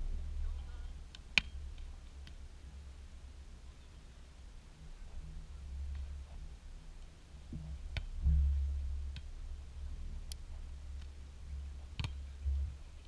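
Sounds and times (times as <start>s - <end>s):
wind rumbling on microphone: 0.0s - 13.0s
hands smacking a volleyball: 12.0s - 12.2s.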